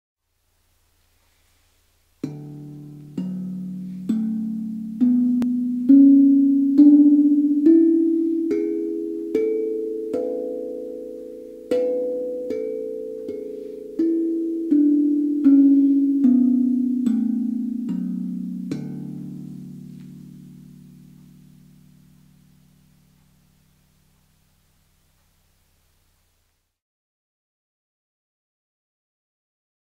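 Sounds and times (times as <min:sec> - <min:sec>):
steel tongue drum notes: 0:02.1 - 0:25.4.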